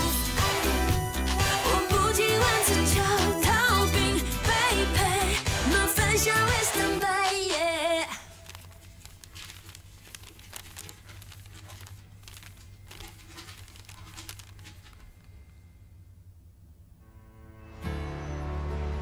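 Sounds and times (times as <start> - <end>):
person singing: 0.0 - 8.4
paper crinkling: 7.6 - 15.6.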